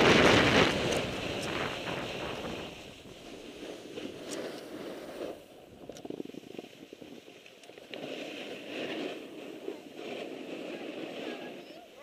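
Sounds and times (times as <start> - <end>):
skis sliding over snow: 0.0 - 12.0
wind rushing on microphone: 0.0 - 12.0
rattly chatter over snow: 6.0 - 12.0.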